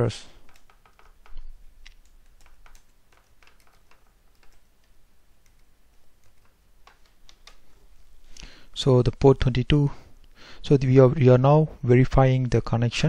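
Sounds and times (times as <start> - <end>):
computer keyboard keys clicking: 0.4 - 7.7.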